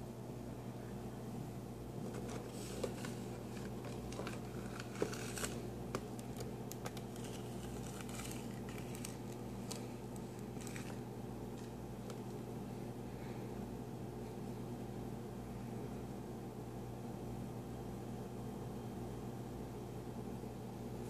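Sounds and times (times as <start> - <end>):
steady low hum: 0.0 - 21.0
cardboard box handled: 2.0 - 5.6.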